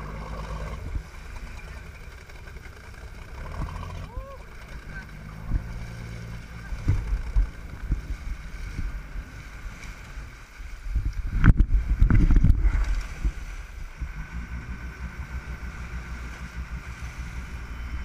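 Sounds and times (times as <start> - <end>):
boat engine rumble: 0.0 - 18.0
water noise: 0.0 - 18.0
wind buffeting microphone: 5.2 - 18.0.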